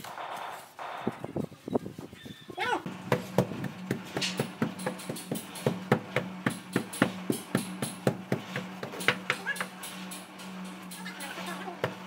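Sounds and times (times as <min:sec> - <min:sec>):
percussive beat of sharp knocks: 0:02.9 - 0:09.8.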